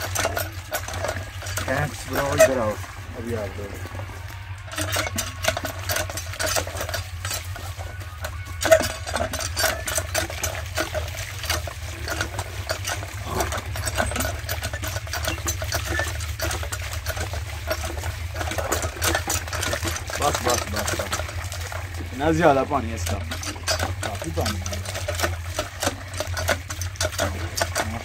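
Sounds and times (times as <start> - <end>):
steady low rumble: 0.0 - 5.8
pump handle creaking and clanking: 0.0 - 28.0
water gushing and splashing: 0.0 - 28.0.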